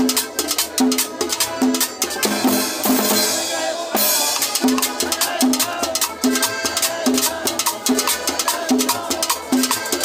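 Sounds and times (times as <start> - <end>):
live cumbia band: 0.0 - 10.0
cymbal-heavy drum break: 1.6 - 7.8.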